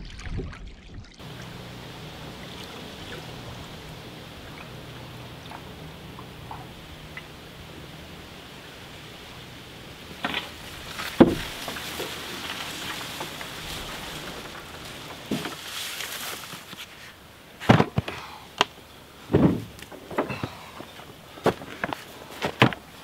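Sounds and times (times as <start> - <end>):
canoe rustling through reeds: 1.2 - 23.0
plastic barrel knocks and thumps: 11.1 - 11.8, 19.3 - 20.6.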